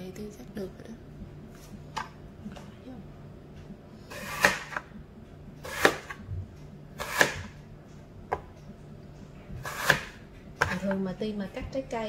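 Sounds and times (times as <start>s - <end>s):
knife slicing apple: 4.0s - 4.9s, 5.6s - 6.2s, 6.9s - 7.6s, 9.6s - 11.0s.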